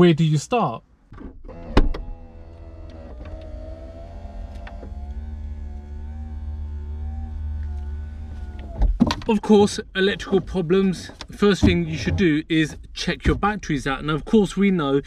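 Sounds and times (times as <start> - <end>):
electric motor humming: 1.5 - 8.8.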